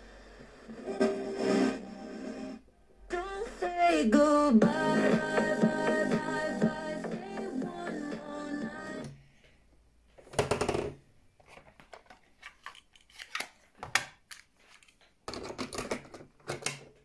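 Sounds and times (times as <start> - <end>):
radio music: 0.1 - 2.6, 3.2 - 9.1.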